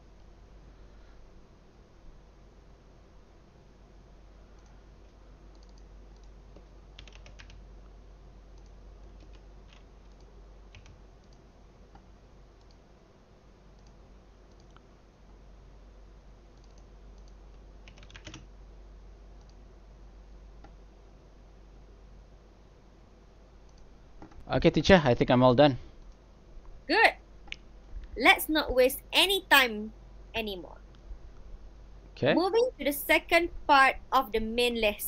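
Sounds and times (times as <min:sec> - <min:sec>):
low steady hum: 0:00.0 - 0:35.0
typing on computer keyboard: 0:05.5 - 0:07.6, 0:08.6 - 0:12.0, 0:13.8 - 0:14.8, 0:16.6 - 0:18.5.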